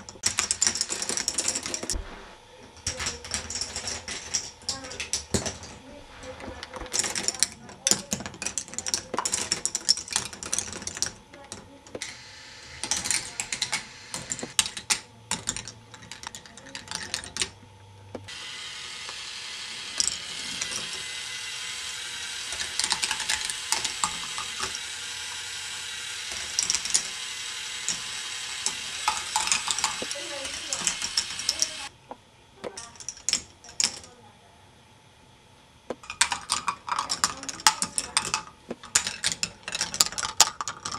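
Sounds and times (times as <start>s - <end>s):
plastic balls clicking and clattering: 0.0s - 2.0s, 2.8s - 17.6s, 19.8s - 31.9s, 32.6s - 34.1s, 35.9s - 40.9s
steady hiss: 18.3s - 31.9s.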